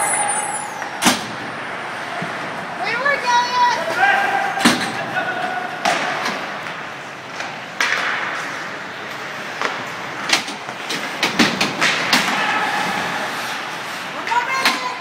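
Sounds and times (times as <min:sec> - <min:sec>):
hockey sticks and puck clacking: 0:00.0 - 0:15.0
skates scraping on ice: 0:01.6 - 0:15.0.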